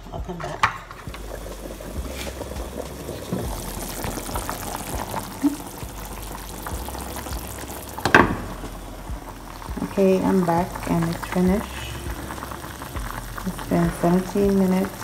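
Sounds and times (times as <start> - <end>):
water boiling with bubbling: 0.9 - 15.0.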